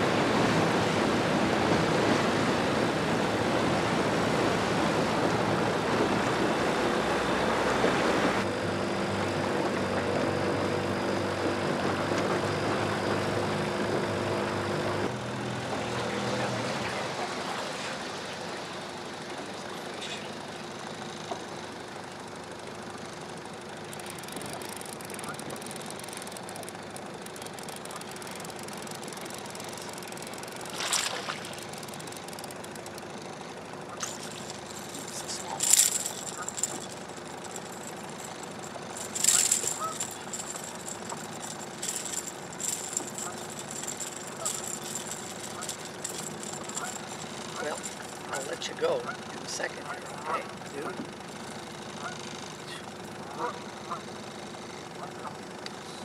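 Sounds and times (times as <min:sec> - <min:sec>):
water rushing: 0:00.0 - 0:08.5, 0:28.6 - 0:32.9
outboard motor running: 0:00.0 - 0:56.0
wind: 0:00.0 - 0:56.0.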